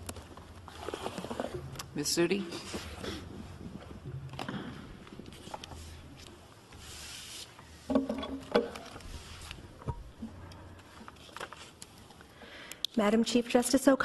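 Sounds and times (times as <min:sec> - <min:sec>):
soft rustle: 0:00.1 - 0:07.8, 0:08.9 - 0:12.3.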